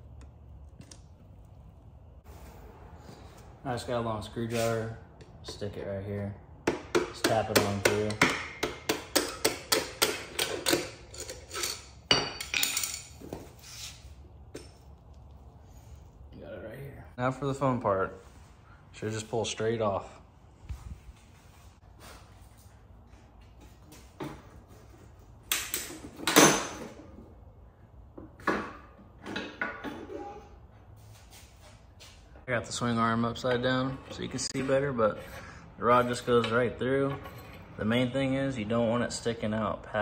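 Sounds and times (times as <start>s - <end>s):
clunks and knocks of bike parts: 23.5s - 27.3s, 28.1s - 30.4s.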